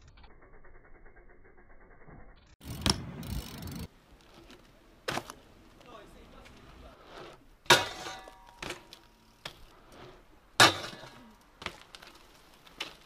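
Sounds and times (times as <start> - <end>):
bike clicks and knocks: 2.1 - 6.8, 7.6 - 13.0
bike striking metal rail: 7.6 - 9.7, 10.6 - 11.9.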